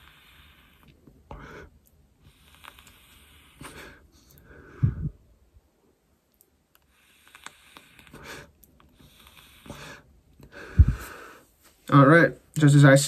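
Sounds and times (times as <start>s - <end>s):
person inhaling and exhaling vapor: 6.9s - 11.5s
low puff of breath: 9.7s - 11.5s.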